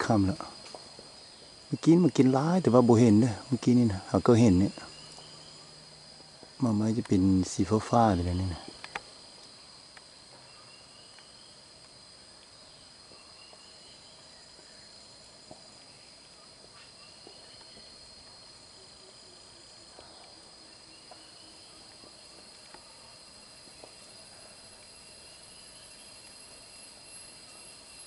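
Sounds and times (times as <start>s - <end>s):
insects droning: 0.0s - 28.0s.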